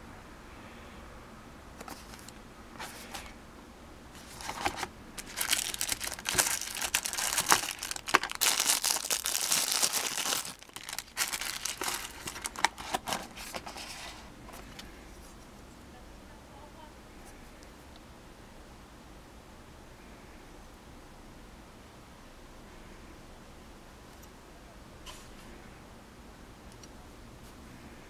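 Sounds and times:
plastic wrapping crinkling: 4.2 - 14.7.

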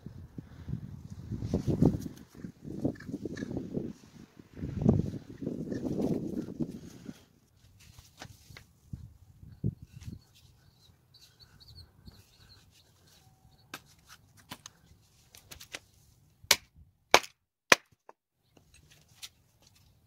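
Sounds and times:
hatchet chopping wood: 16.5 - 18.2.

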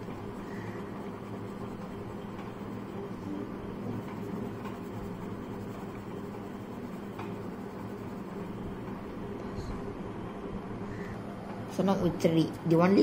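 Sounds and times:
pencil scratching on paper: 0.0 - 3.2, 3.9 - 8.7
low background hum: 0.0 - 13.0.

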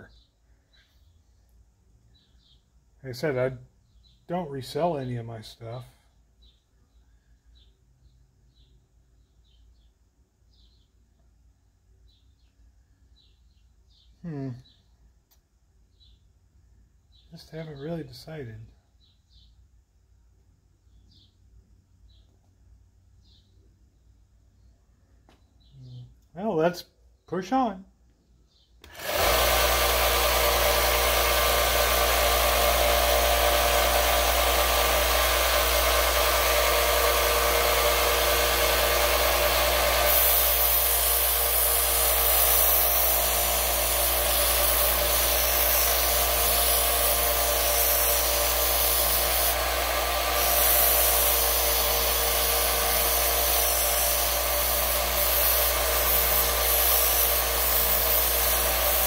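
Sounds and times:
belt sander motor hum: 28.8 - 59.0
rasping sanding of wood: 29.0 - 59.0.

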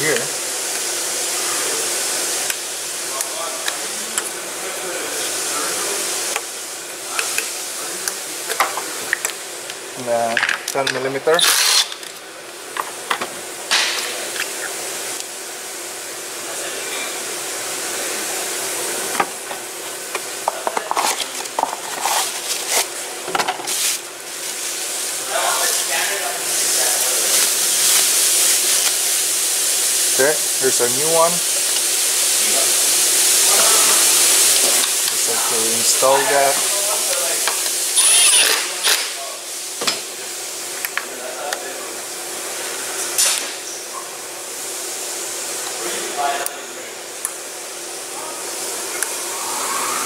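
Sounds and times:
steady background hiss: 0.0 - 50.0.

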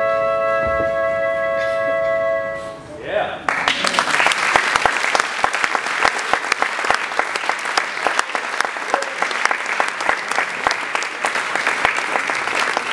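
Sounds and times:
audience applauding: 3.5 - 12.9.

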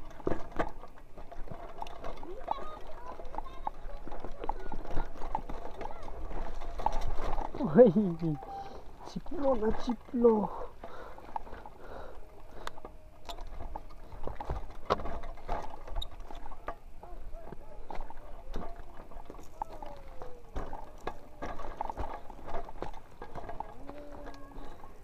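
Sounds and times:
bike knocks and rattles: 0.0 - 11.8, 12.8 - 25.0
tyres crunching on dirt: 0.0 - 25.0.

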